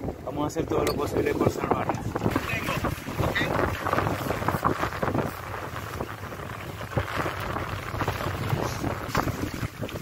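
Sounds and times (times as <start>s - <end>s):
water splashing against boat: 0.0s - 10.0s.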